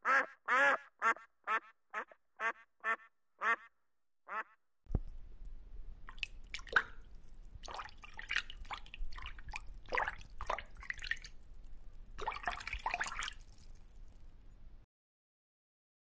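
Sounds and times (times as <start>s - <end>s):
low steady hum: 4.9s - 14.8s
water dripping and bubbling: 6.0s - 14.6s.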